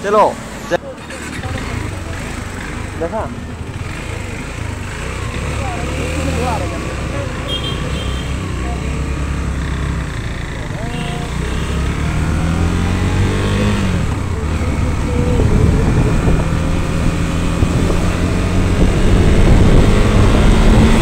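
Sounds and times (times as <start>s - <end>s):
motorcycle engine accelerating: 1.0s - 21.0s
wind rushing over phone: 15.2s - 21.0s.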